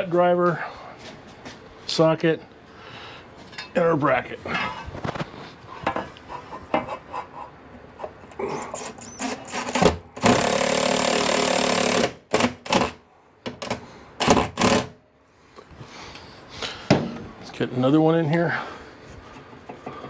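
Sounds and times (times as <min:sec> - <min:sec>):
cordless drill driving screw: 0:08.8 - 0:13.0, 0:14.2 - 0:14.9
drill trigger pulls: 0:08.9 - 0:12.9.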